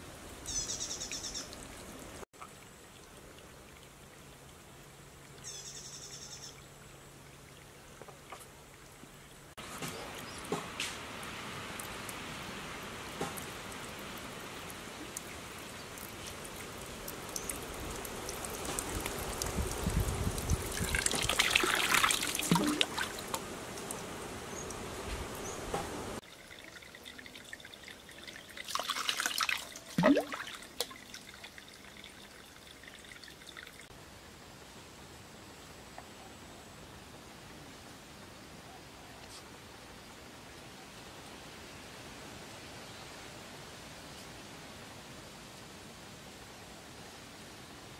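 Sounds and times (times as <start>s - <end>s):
water trickling from bamboo spout: 0.4s - 5.6s, 7.1s - 24.0s, 26.2s - 34.0s.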